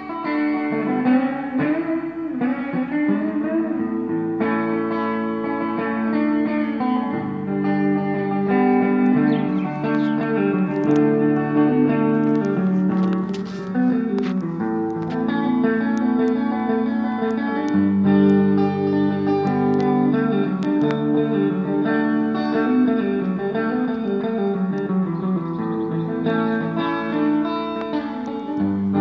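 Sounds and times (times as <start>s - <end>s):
ringing electric guitar notes: 0.0s - 29.0s
bass line: 7.1s - 15.9s.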